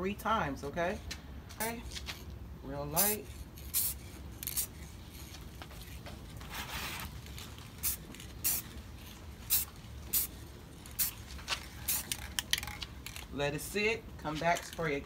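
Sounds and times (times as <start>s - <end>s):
aerosol can spraying: 3.0s - 6.0s, 7.8s - 8.7s, 9.5s - 10.3s, 11.0s - 11.2s, 11.8s - 12.2s.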